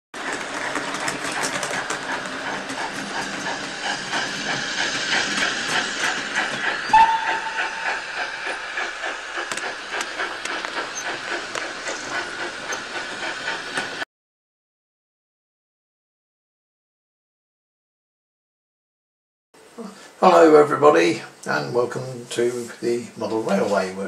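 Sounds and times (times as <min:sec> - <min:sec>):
steam train chuffing: 0:00.2 - 0:14.0
steam train whistle: 0:06.8 - 0:08.8.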